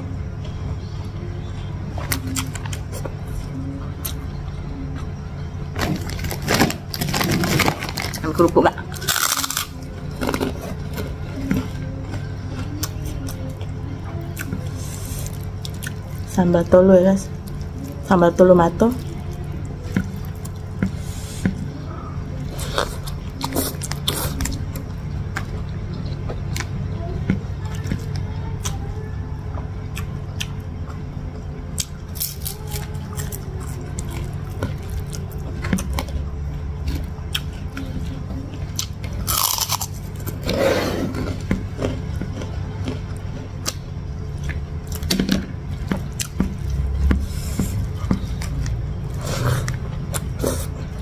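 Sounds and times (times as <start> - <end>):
person chewing food: 31.7 - 45.1, 45.7 - 51.0
crunching: 38.8 - 43.0.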